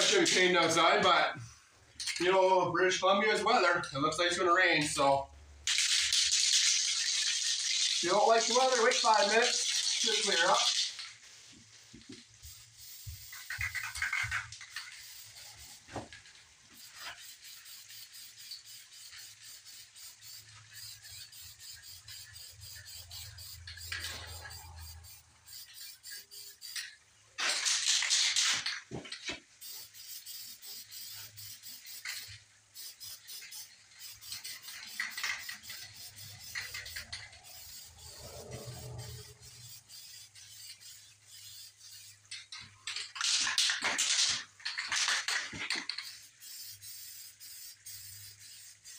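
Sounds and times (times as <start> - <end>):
spray can ball rattling: 0.0 - 0.8, 2.0 - 2.3, 5.6 - 48.9
aerosol spray hissing: 12.3 - 16.0, 16.7 - 26.8, 29.6 - 42.3, 46.0 - 48.9.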